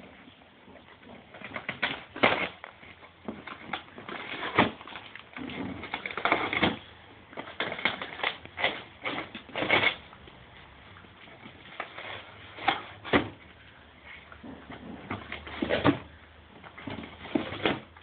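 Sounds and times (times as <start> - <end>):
dog ripping cardboard: 1.2 - 10.1, 16.8 - 18.0.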